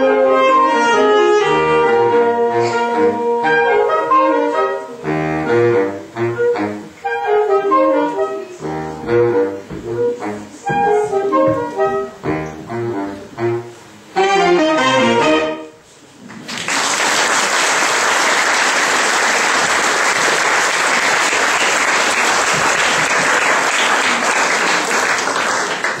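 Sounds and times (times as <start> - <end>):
saxophone ensemble playing: 0.0 - 16.0
audience applause: 16.3 - 26.0.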